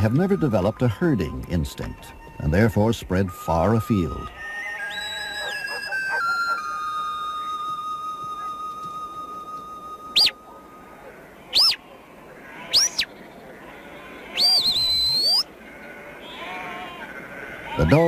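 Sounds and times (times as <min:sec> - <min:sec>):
high whistled commands: 0:00.0 - 0:11.8, 0:12.7 - 0:13.1, 0:14.4 - 0:15.5
short whistle pip: 0:04.7 - 0:10.4, 0:11.5 - 0:11.8, 0:14.4 - 0:15.4.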